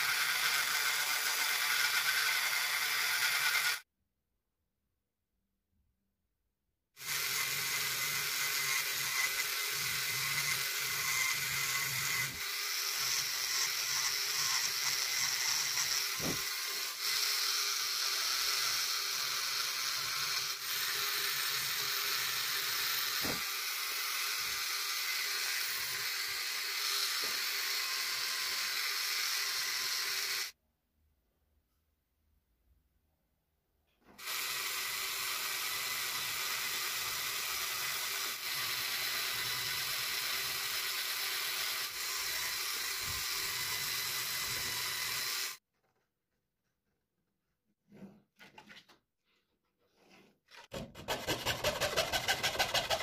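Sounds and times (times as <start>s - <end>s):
rotary tool cutting wood: 0.0s - 3.9s, 7.0s - 30.6s, 34.2s - 45.6s, 50.5s - 53.0s.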